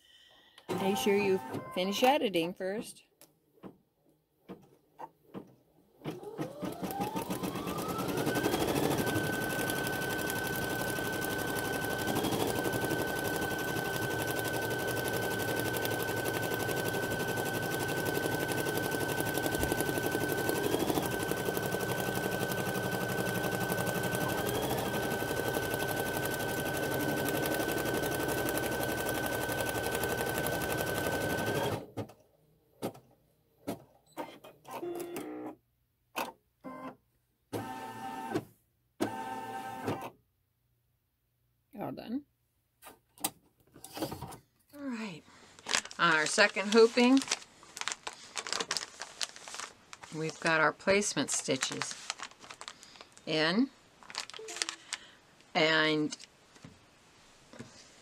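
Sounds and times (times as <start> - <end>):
needle rattling rapidly: 45.6 - 50.5.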